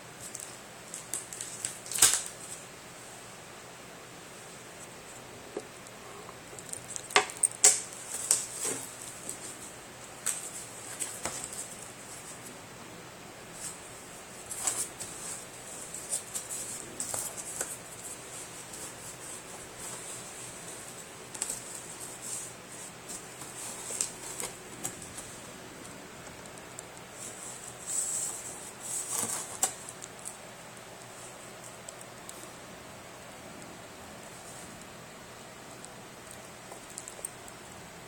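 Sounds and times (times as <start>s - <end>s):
cardboard and plastic crinkling: 14.4s - 25.4s, 27.2s - 30.0s.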